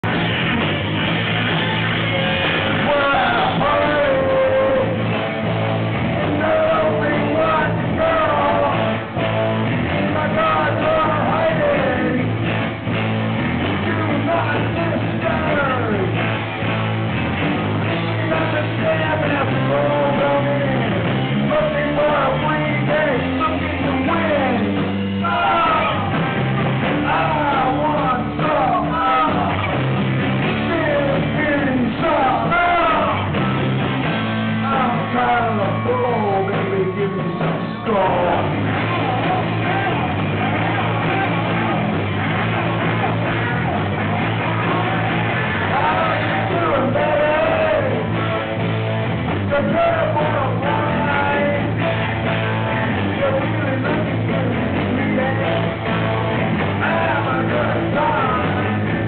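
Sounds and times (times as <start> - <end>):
electric guitar: 0.0 - 59.0
live rock band playing: 0.0 - 59.0
person singing: 1.4 - 5.3, 6.0 - 12.6, 17.8 - 29.9, 34.5 - 59.0.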